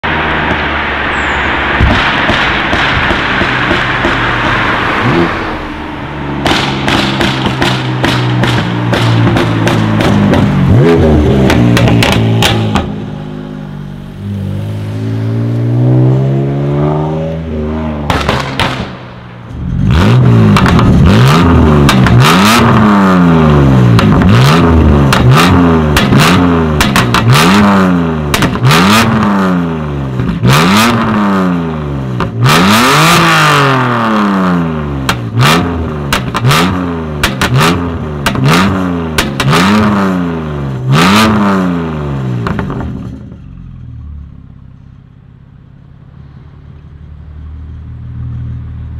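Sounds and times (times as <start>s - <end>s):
car engine revving: 0.0s - 44.6s
exhaust pops and cracks: 1.8s - 4.8s, 6.4s - 10.6s, 18.1s - 19.0s, 20.5s - 21.0s, 25.9s - 27.3s, 28.3s - 28.7s, 36.1s - 38.5s, 39.1s - 39.9s.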